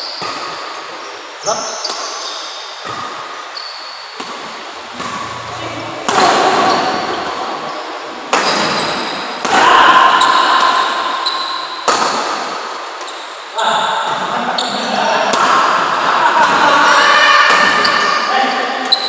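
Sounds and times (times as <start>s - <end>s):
shoes squeaking on court: 1.8s - 6.0s
rackets striking shuttlecock: 4.2s - 7.1s
players' voices: 4.5s - 8.7s.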